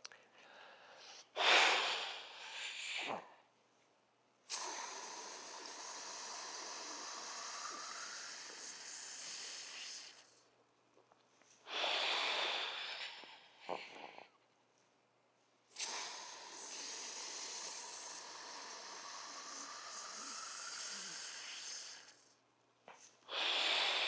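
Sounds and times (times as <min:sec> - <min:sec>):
forceful exhale: 0:04.5 - 0:10.4, 0:15.8 - 0:22.2, 0:23.0 - 0:24.0
man inhaling through mouthpiece: 0:04.5 - 0:10.4, 0:11.7 - 0:14.4, 0:15.7 - 0:22.3, 0:23.0 - 0:24.0.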